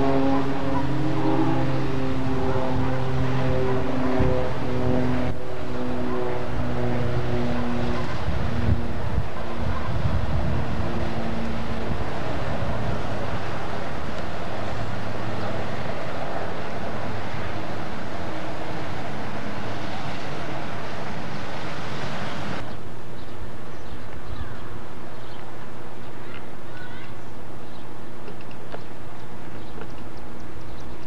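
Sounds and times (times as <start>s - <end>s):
loud rushing noise: 0.0s - 22.7s
low engine hum: 0.0s - 31.0s.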